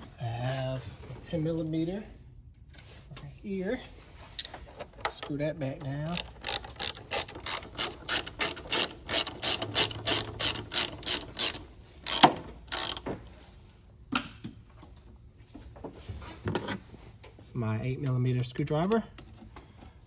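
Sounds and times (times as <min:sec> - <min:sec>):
ratchet wrench clicking: 0:06.0 - 0:13.1.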